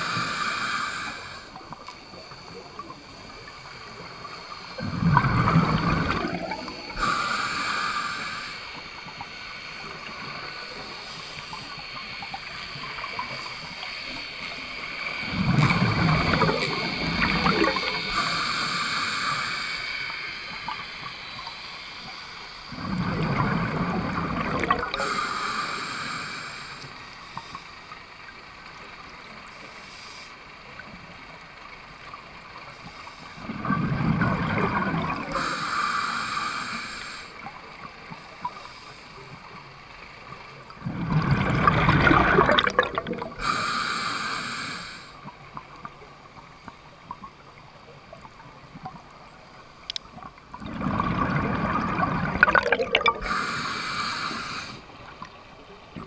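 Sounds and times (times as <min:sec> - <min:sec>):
regulator hiss: 0:00.0 - 0:33.7, 0:34.5 - 0:41.2, 0:41.8 - 0:50.6, 0:51.7 - 0:56.0
exhaled bubbles underwater: 0:01.6 - 0:19.4, 0:22.7 - 0:25.3, 0:33.4 - 0:38.6, 0:40.6 - 0:44.0, 0:47.1 - 0:56.0.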